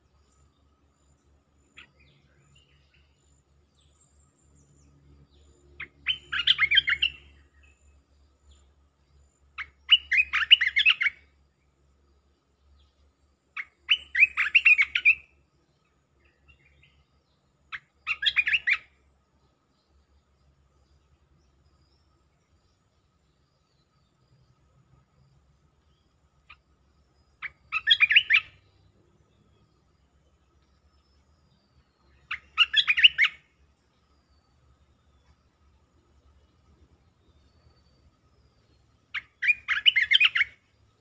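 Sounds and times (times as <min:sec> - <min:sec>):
bulbul singing: 0:00.0 - 0:41.0.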